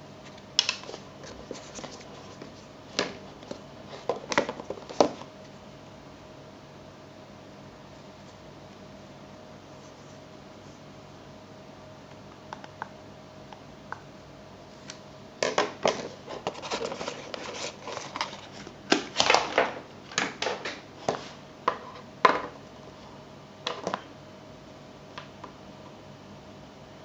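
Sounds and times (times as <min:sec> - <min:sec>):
cardboard scraping and rustling: 0:00.9 - 0:05.3, 0:15.9 - 0:19.7.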